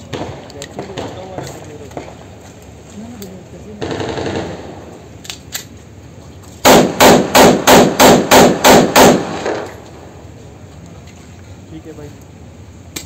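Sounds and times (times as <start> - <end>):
pistol firing a burst: 3.8 - 4.9, 6.6 - 9.7.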